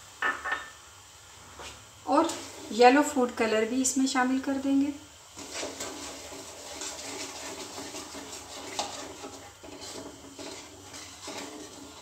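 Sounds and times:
wooden spoon scraping a pan: 5.3 - 12.0.

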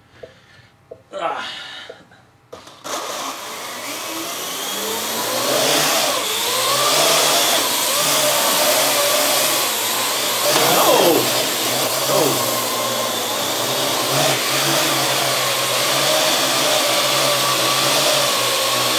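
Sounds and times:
quadcopter propellers whirring: 3.8 - 18.9.

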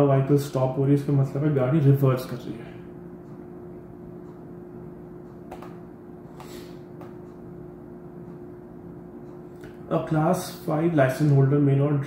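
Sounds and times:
steady low hum: 0.0 - 12.0
computer mouse clicks: 5.5 - 5.8.

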